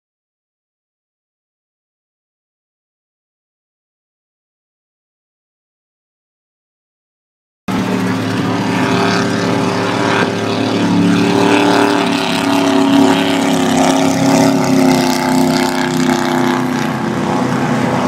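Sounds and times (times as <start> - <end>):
powerboat engines drone: 7.7 - 18.0
wash of noise: 7.7 - 18.0.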